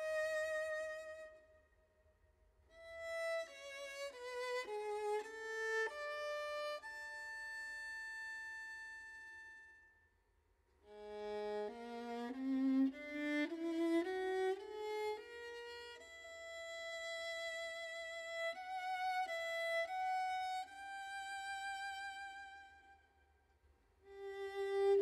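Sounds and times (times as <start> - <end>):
solo violin melody: 0.0 - 1.5, 2.7 - 9.8, 10.9 - 23.1, 24.0 - 25.0.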